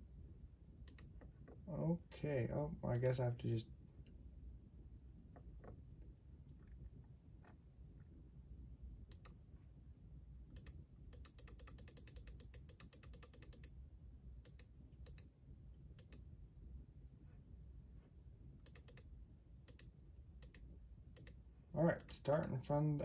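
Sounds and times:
mouse clicks: 0:02.9 - 0:03.2, 0:09.1 - 0:09.4, 0:10.5 - 0:13.7, 0:18.6 - 0:19.1, 0:19.7 - 0:20.6, 0:22.0 - 0:22.6
keyboard keystrokes: 0:10.6 - 0:13.7, 0:18.7 - 0:19.0.

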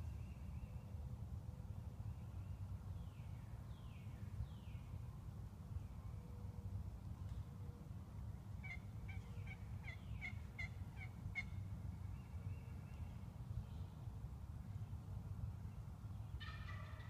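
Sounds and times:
wild turkey calling: 0:08.6 - 0:11.6, 0:16.4 - 0:17.0.

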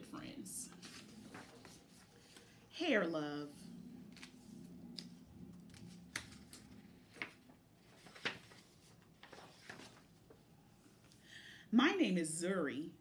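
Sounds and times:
book pages turning: 0:00.7 - 0:02.6, 0:04.0 - 0:10.5.

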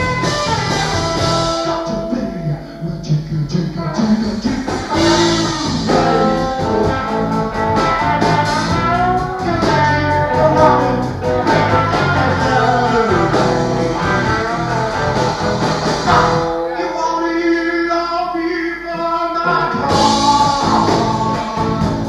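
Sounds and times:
guitar rock song with singing: 0:00.0 - 0:22.0.

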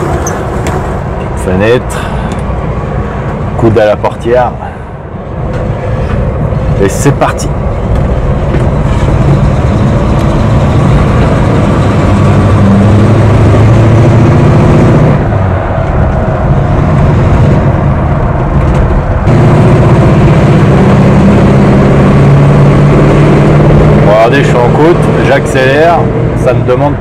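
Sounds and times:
tyre and wind noise: 0:07.5 - 0:19.8
car engine pulling away: 0:07.8 - 0:26.4.

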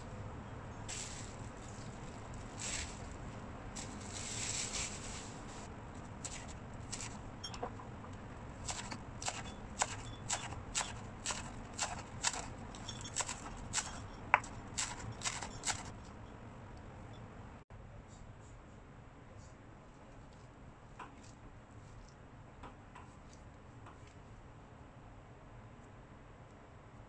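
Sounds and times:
plastic bag crinkling: 0:00.9 - 0:05.7
knife chopping on wooden board: 0:08.6 - 0:15.9.

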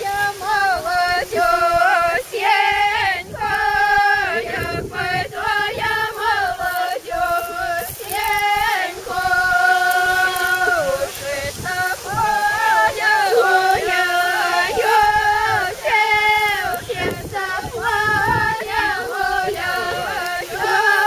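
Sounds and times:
folk group singing together: 0:00.0 - 0:21.0.

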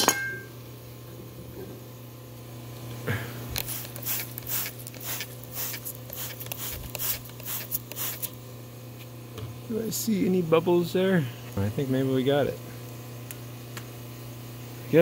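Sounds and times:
low steady hum: 0:00.0 - 0:15.0
trigger spray bottle squirting: 0:03.6 - 0:08.4.

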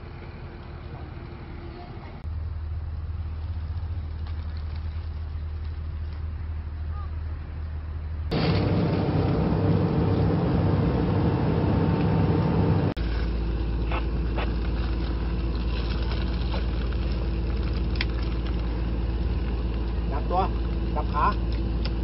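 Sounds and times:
deeper engine hum: 0:00.0 - 0:22.0
diesel machinery engine running: 0:08.3 - 0:22.0.

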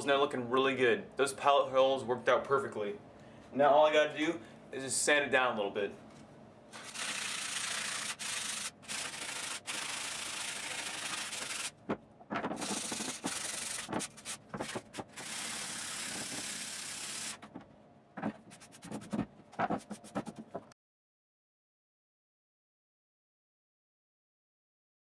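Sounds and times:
sandpaper rubbing on wood: 0:06.8 - 0:11.7, 0:12.6 - 0:17.4, 0:18.4 - 0:20.5
brush sweeping dust: 0:18.5 - 0:19.2.

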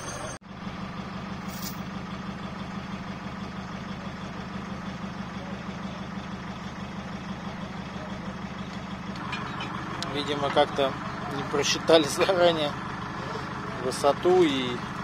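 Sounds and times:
large engine idling: 0:00.0 - 0:15.0.

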